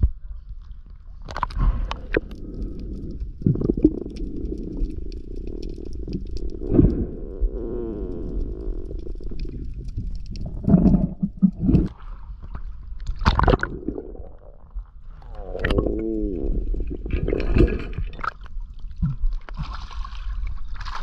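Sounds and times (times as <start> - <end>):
muffled underwater gurgling: 1.6 - 11.9, 13.2 - 19.2.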